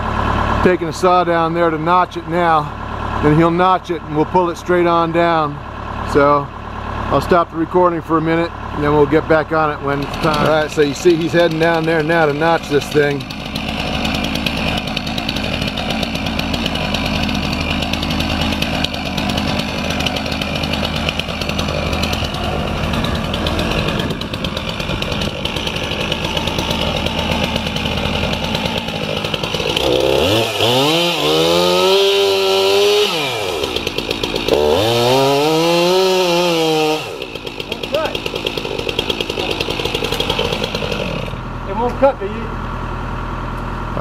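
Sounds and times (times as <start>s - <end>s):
chainsaw idling and cutting wood: 0.0s - 44.0s.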